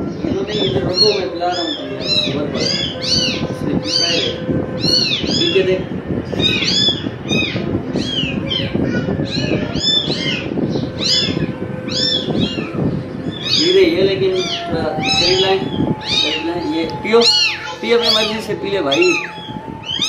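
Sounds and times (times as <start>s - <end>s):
kittens mewing: 6.4s - 20.0s.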